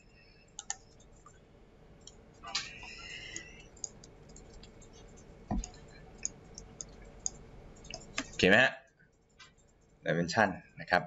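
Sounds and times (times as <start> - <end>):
computer mouse clicking: 0.6 - 1.3, 2.0 - 8.4.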